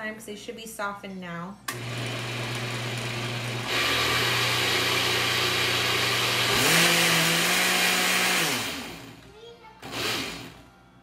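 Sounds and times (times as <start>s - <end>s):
blender motor running: 1.7s - 9.2s, 9.8s - 10.6s.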